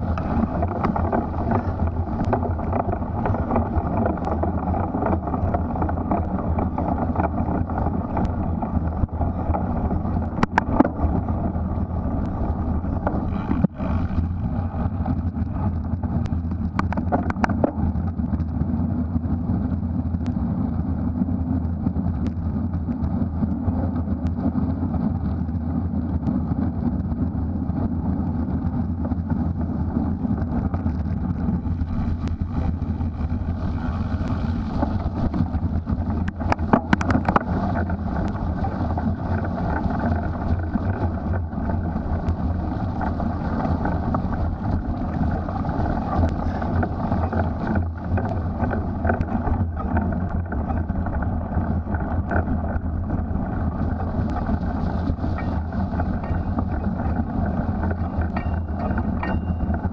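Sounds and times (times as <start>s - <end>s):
clatter of clicks: 0.0s - 14.3s, 15.1s - 18.6s, 30.4s - 53.1s, 54.2s - 59.9s
bike tyres on mud: 0.0s - 59.9s
wind on microphone: 0.0s - 59.9s.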